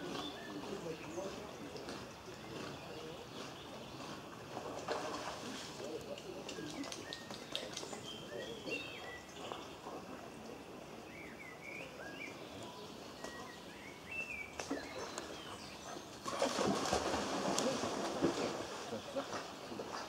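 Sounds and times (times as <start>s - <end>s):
birds chirping: 0.0s - 20.0s
dog splashing through stream: 4.4s - 8.8s, 14.6s - 20.0s.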